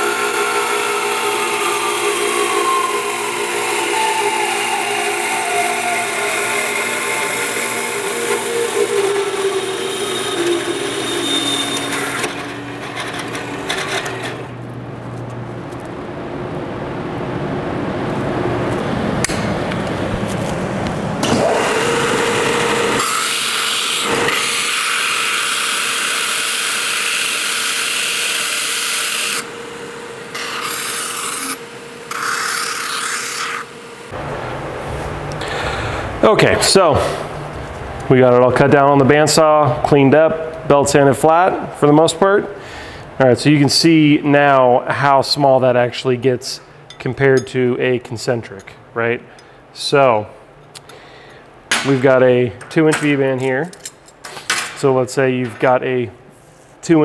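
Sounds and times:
bandsaw cutting metal: 0.0s - 14.5s, 21.2s - 34.2s
belt sander grinding metal: 0.0s - 14.6s, 21.2s - 34.2s.

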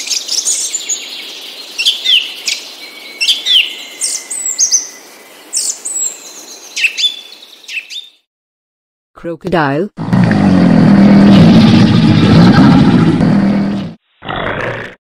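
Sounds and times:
birds chirping and whistling: 0.0s - 8.2s.

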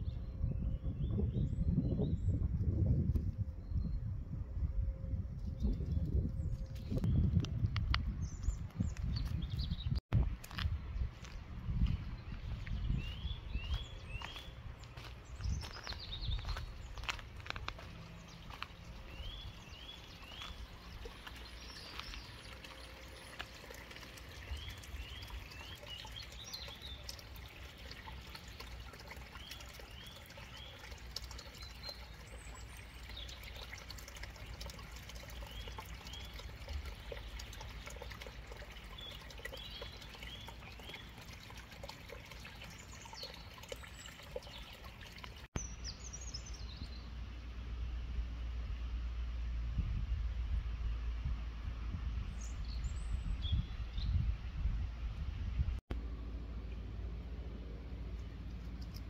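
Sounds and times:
stream trickling: 5.4s - 48.6s, 55.9s - 59.0s
bird singing rising notes: 17.9s - 28.5s.

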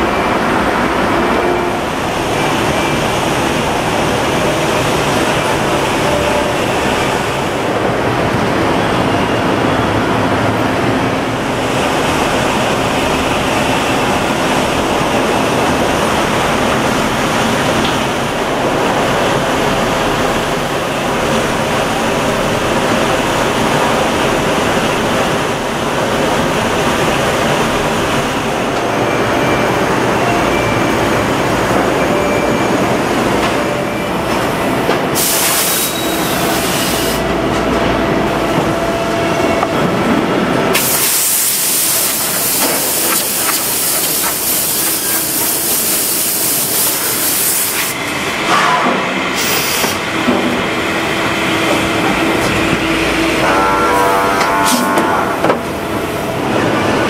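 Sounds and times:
foundry machinery noise: 34.2s - 57.0s
high hissing air blast: 40.8s - 48.0s.

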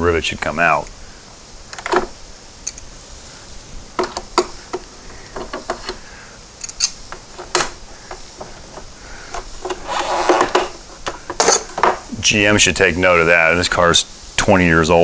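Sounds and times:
plastic rivets clicking and snapping: 1.7s - 2.9s, 4.0s - 6.0s, 6.6s - 12.0s.

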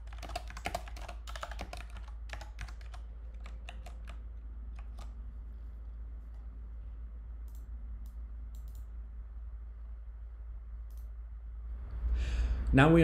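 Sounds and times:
computer keys clicking: 0.0s - 5.2s, 7.4s - 8.9s
steady low hum: 0.0s - 13.0s.

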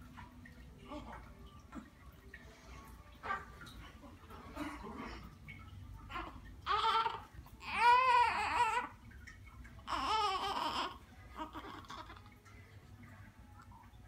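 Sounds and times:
newborn baby crying: 6.1s - 9.0s, 9.8s - 12.3s.

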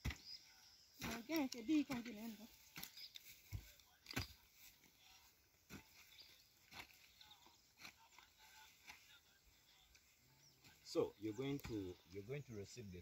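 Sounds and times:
hoe chopping into soil: 1.0s - 4.4s.

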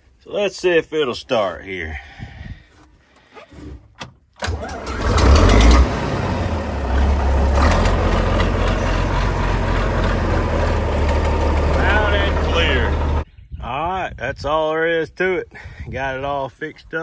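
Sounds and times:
tractor engine starting and idling: 4.0s - 13.2s.

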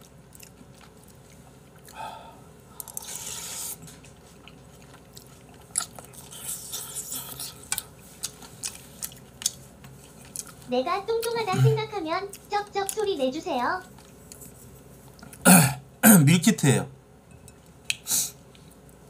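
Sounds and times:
chewing with sharp clicks: 0.0s - 2.0s, 2.8s - 11.4s
person slurping soup: 2.8s - 3.9s.

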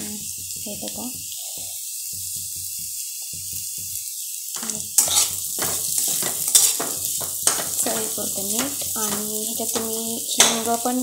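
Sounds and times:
potatoes sizzling in oil: 0.0s - 11.0s
metal spatula scraping pan: 4.6s - 10.7s.

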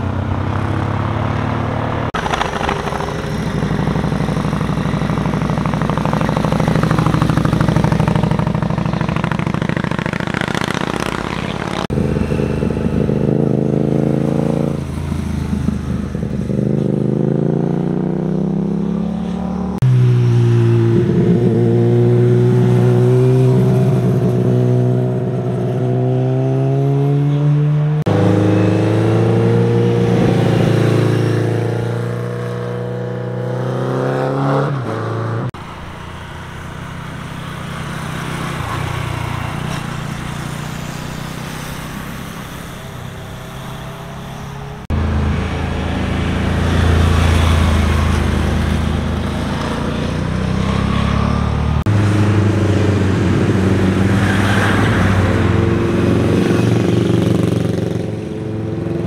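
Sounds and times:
motorcycle engines accelerating: 0.0s - 59.0s.

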